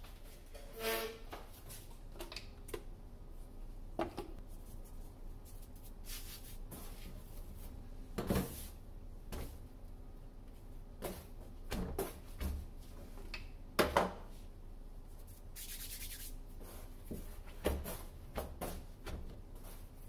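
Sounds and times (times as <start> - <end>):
hands kneading bread dough: 1.5 - 13.3, 14.2 - 20.0.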